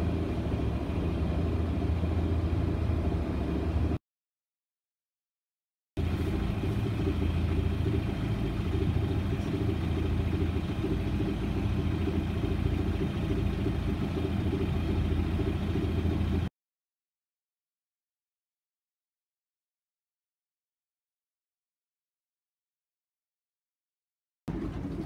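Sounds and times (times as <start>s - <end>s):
boat engine running: 0.0s - 4.0s, 6.0s - 16.5s, 24.5s - 25.0s.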